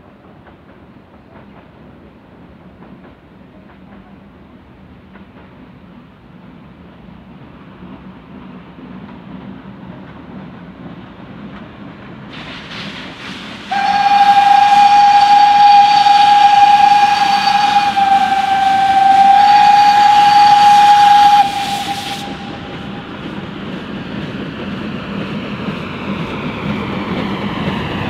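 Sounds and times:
steam train rumble: 0.0 - 28.0
steam locomotive whistle: 13.6 - 24.0.

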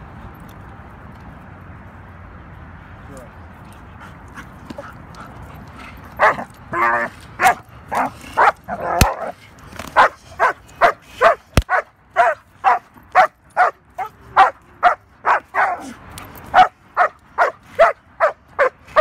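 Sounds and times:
dog barking rapidly: 10.0 - 15.9, 16.5 - 19.0.

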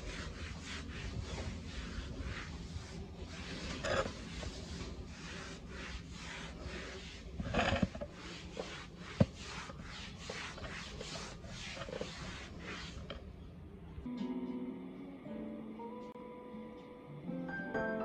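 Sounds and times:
damp cloth rubbing floor tiles: 0.0 - 13.4.

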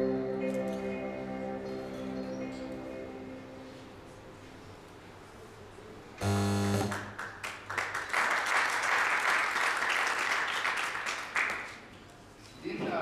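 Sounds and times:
audience applauding: 6.8 - 11.9.

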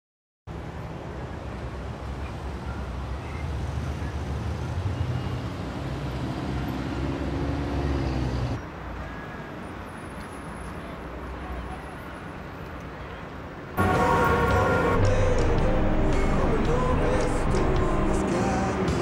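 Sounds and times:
road traffic rumble: 0.5 - 19.0
engine hum: 13.8 - 19.0.

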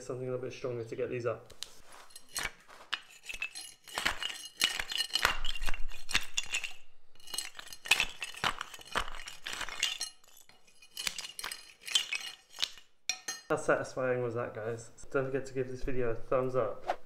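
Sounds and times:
steel clinking on wood: 2.0 - 13.5.

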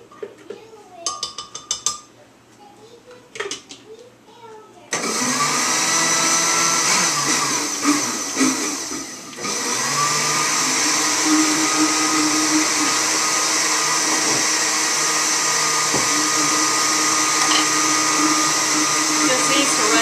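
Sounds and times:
blender running: 4.9 - 20.0.

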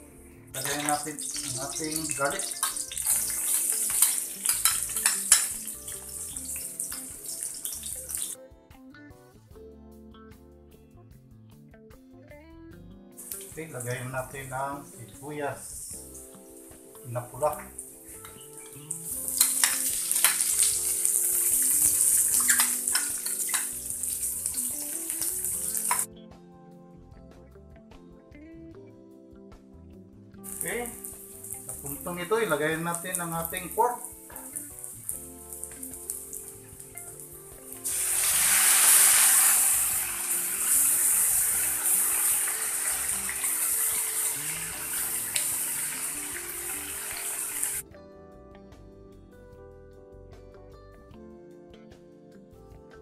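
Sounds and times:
onions sizzling in oil: 0.6 - 8.4, 13.2 - 14.6, 15.9 - 26.1, 30.4 - 32.3, 32.9 - 47.8
metal spatula scraping and clinking: 2.1 - 5.6.

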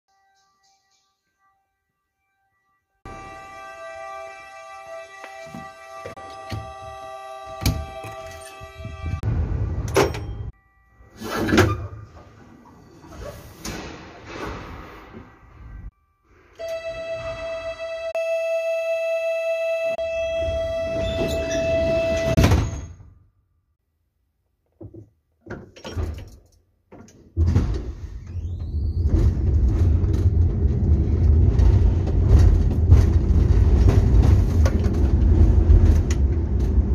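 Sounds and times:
door warning buzzer: 3.1 - 9.2, 16.6 - 22.8
sliding doors shutting: 20.3 - 22.8, 27.4 - 36.9.

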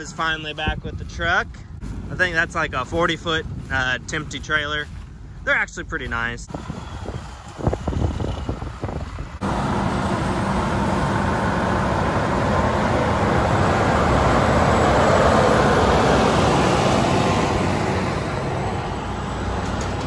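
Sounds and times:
tractor diesel engine passing: 6.5 - 20.0.

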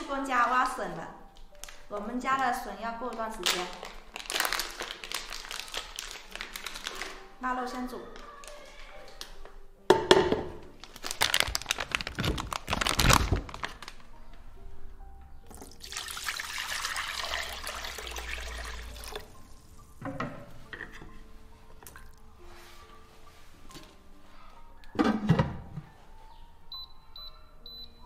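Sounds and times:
light background music: 0.0 - 28.0
water pouring into wok: 15.6 - 19.6.

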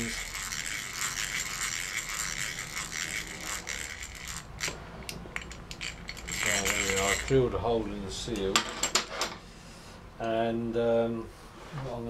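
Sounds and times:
hand drill gears whirring: 0.0 - 7.4.

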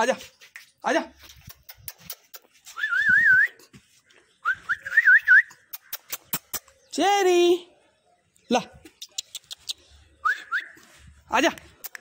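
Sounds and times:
person whistling: 2.7 - 3.6, 4.4 - 5.5.

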